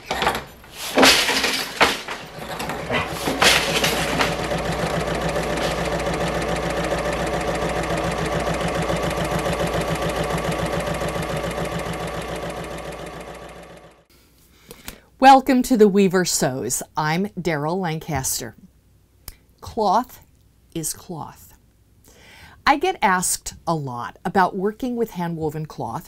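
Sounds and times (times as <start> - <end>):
wooden knocks of loom beater: 0.0 - 13.5
electric sewing machine stitching: 2.3 - 14.1.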